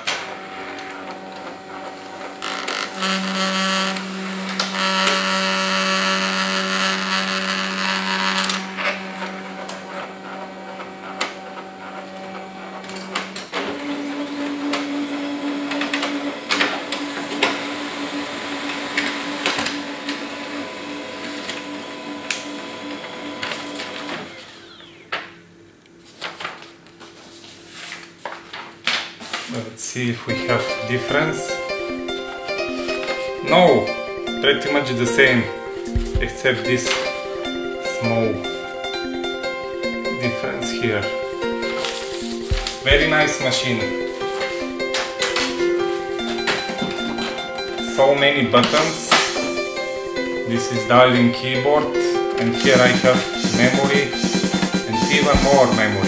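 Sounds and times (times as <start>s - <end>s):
fax machine clicks: 0.0s - 24.7s
fax machine motors humming: 0.0s - 26.1s, 30.1s - 56.0s.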